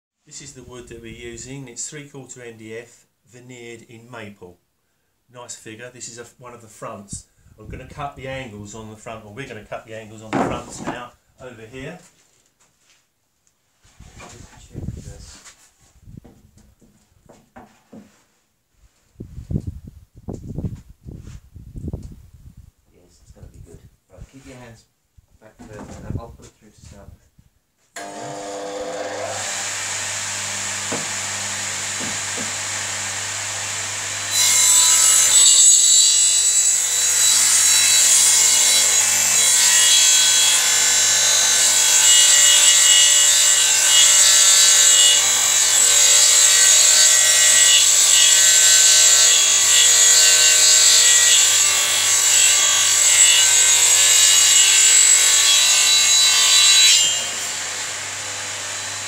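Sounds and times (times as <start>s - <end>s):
saw cutting wood panel: 10.2s - 11.1s, 28.0s - 59.0s.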